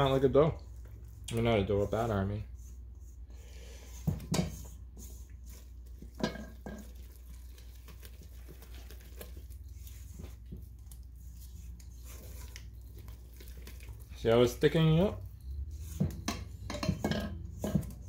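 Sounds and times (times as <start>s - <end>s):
spatula stirring batter in bowl: 0.0s - 18.0s
spatula knocking against bowl: 16.0s - 18.0s.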